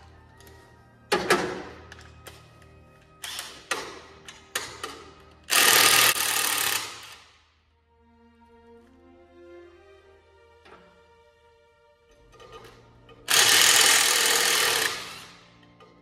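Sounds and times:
background music: 0.0s - 16.0s
handheld power tool running: 5.5s - 7.3s, 13.3s - 15.4s.

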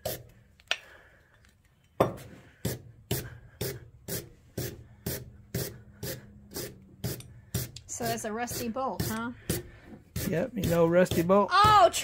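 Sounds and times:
wire brush scrubbing metal: 2.6s - 12.0s.

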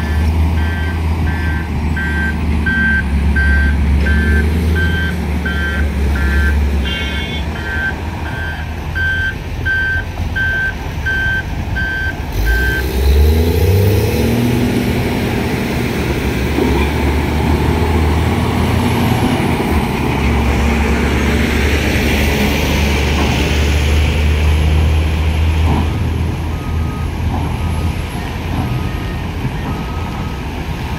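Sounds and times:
lower reversing alarm beeping: 0.0s - 12.9s, 25.9s - 30.4s
reversing alarm beeping: 0.0s - 13.0s, 25.9s - 30.5s
dump truck pulling away: 0.0s - 30.9s
heavy diesel engines rumbling: 0.0s - 30.9s.

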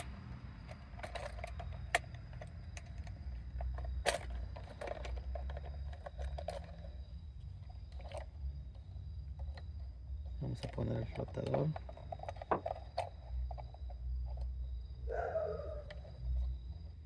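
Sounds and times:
plastic parts clicking and knocking: 0.0s - 7.0s, 7.9s - 8.4s, 9.3s - 14.5s.

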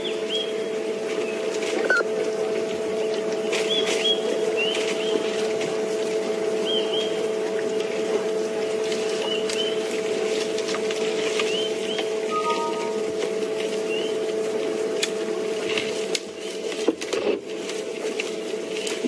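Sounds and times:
steady hum: 0.0s - 19.0s
twigs snapping and rustling: 8.8s - 12.1s.

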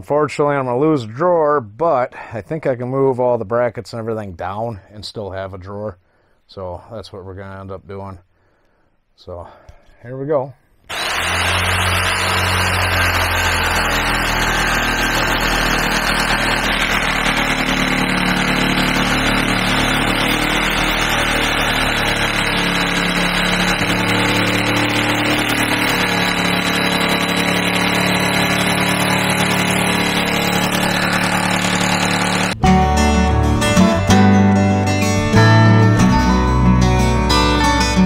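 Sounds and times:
electric saw cutting countertop: 10.9s - 32.6s.

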